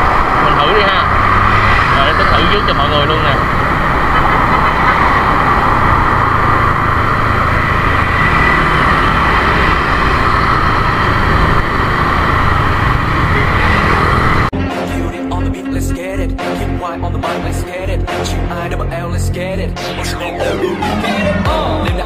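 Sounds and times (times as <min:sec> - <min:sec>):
scooter riding noise: 0:00.0 - 0:14.5
pop music: 0:14.6 - 0:22.0.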